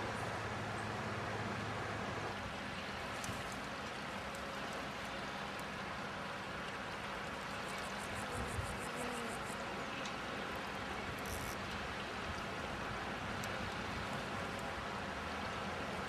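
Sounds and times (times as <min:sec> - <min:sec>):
river water rushing: 0:00.0 - 0:08.2, 0:09.4 - 0:16.0
faint rapid ticks: 0:11.2 - 0:11.6.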